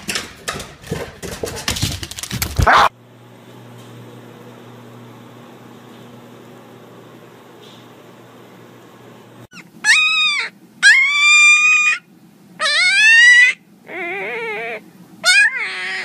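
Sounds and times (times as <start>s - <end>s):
puppy howling: 2.6s - 2.9s, 9.5s - 16.0s.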